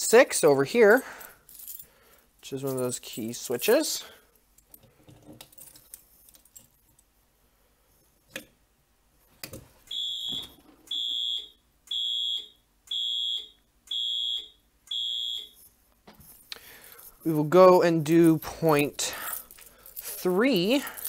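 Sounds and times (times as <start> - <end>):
fire alarm horn beeping: 9.9 - 15.6.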